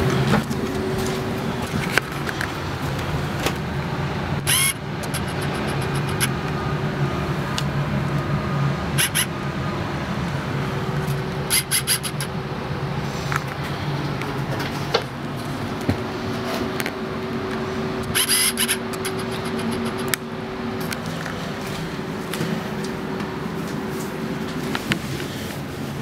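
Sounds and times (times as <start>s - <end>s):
bus diesel engine idling: 0.0s - 26.0s
sharp high clicks: 4.4s - 6.5s, 9.0s - 9.3s, 11.5s - 12.3s, 18.0s - 20.3s.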